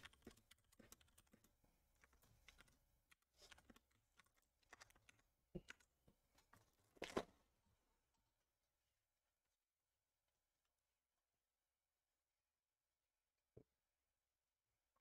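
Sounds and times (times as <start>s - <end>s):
faint clicks and taps: 0.0s - 7.3s.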